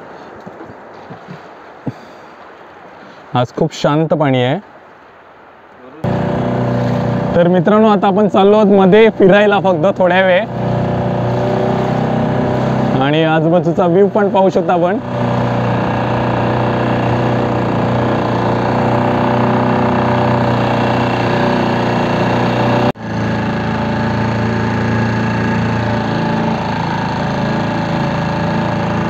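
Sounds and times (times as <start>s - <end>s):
outboard motor running: 6.0s - 29.0s.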